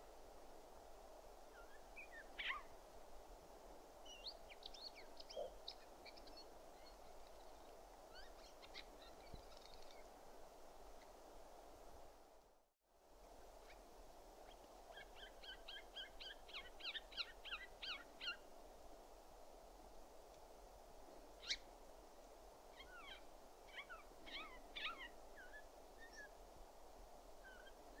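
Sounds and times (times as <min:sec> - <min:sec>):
faint background hiss: 0:00.0 - 0:28.0
bird calling: 0:05.2 - 0:05.6, 0:22.8 - 0:26.3.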